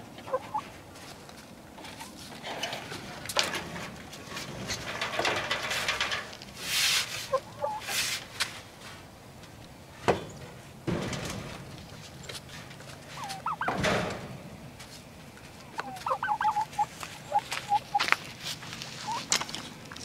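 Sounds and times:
chickens clucking: 0:00.0 - 0:01.0, 0:01.6 - 0:06.2, 0:07.0 - 0:08.1, 0:09.9 - 0:14.4, 0:15.5 - 0:19.9
rustling and scraping: 0:00.4 - 0:20.0.

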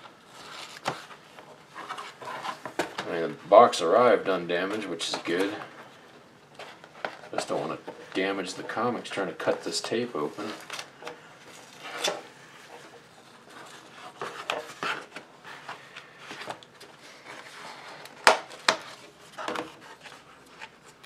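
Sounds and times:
cardboard rubbing and scraping: 0:00.3 - 0:03.0.

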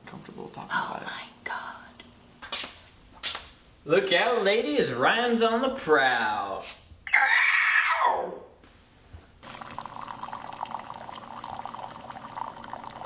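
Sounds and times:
coffee pouring into cup: 0:09.4 - 0:13.0.

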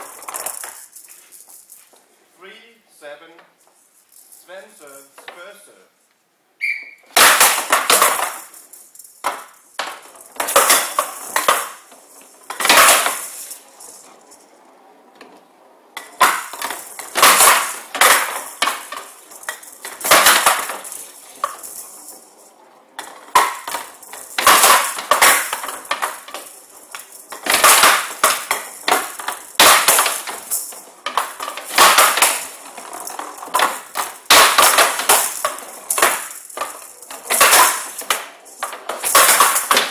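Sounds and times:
rattling ball struck by wooden bats: 0:06.9 - 0:14.1, 0:16.0 - 0:22.2, 0:23.0 - 0:39.9
ball clacking against table walls: 0:07.0 - 0:39.9.

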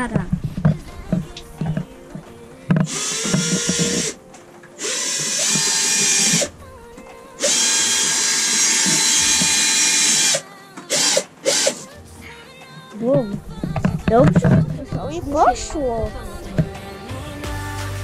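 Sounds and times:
power drill boring into ceiling: 0:02.7 - 0:04.2, 0:04.8 - 0:06.5, 0:07.4 - 0:11.9.

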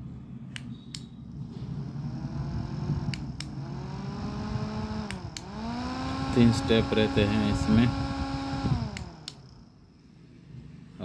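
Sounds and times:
small fan motor whirring: 0:01.3 - 0:10.0.

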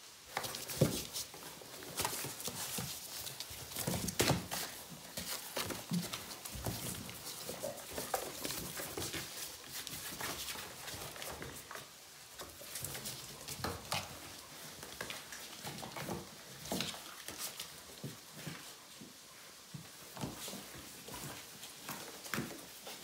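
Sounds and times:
cardboard rustling and crumpling: 0:00.3 - 0:18.6
paws clicking on floor: 0:00.3 - 0:23.0.

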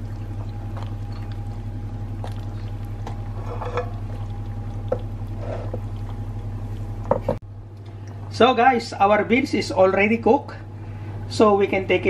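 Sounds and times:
water boiling and bubbling: 0:00.0 - 0:07.4
steady low hum: 0:00.0 - 0:12.0.

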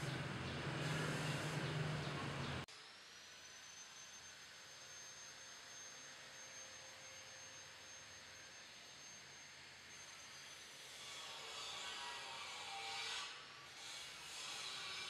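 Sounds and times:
high-pitched whine: 0:00.0 - 0:10.8.

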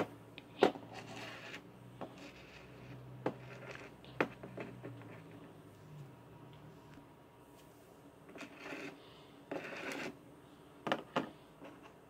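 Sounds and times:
small rubbing and shuffling: 0:00.9 - 0:06.1.

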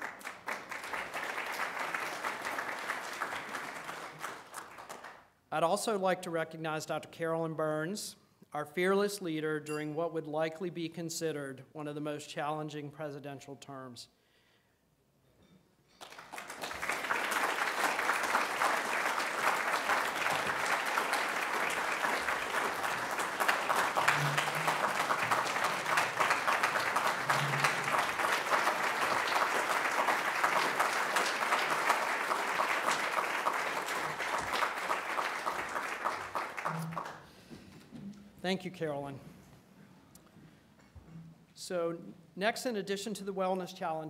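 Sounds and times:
people applauding: 0:00.0 - 0:05.3, 0:16.0 - 0:37.4.

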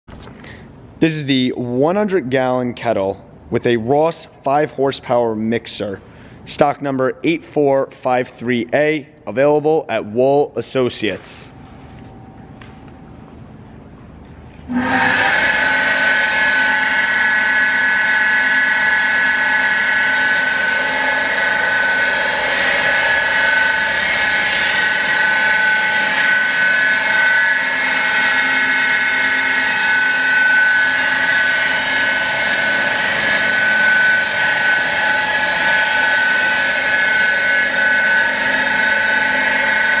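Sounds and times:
mixer motor whining: 0:11.6 - 0:40.0.

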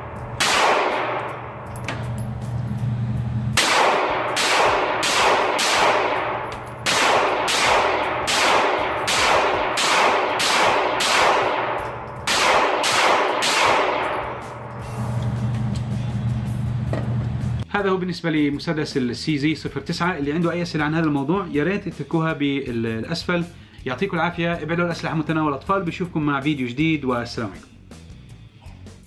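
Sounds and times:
pistol shots echoing indoors: 0:00.0 - 0:02.2, 0:03.6 - 0:14.8.

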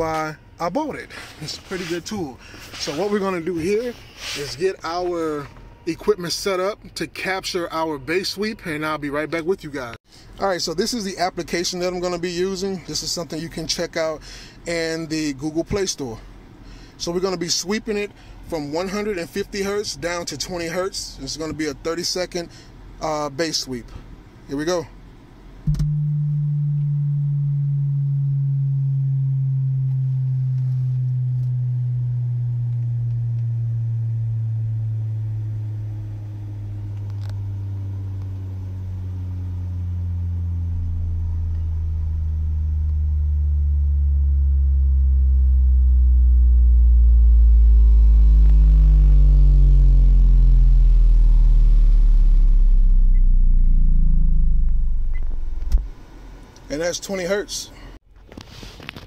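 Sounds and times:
subwoofer tone sweep: 0:00.0 - 0:06.7, 0:25.6 - 0:56.4.

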